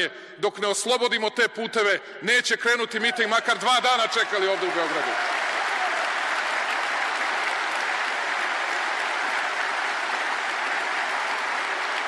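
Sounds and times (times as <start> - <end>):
audience applauding: 3.5 - 12.0.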